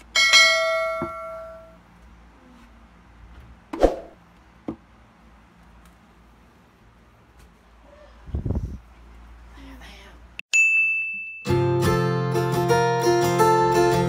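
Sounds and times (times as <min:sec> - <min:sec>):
bright bell-like chime: 0:10.5 - 0:12.2.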